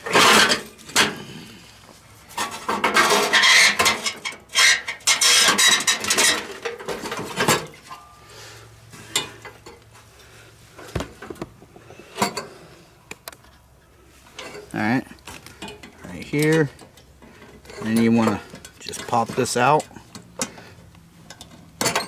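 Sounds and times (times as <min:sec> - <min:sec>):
sharp knocks: 0:10.9 - 0:11.9.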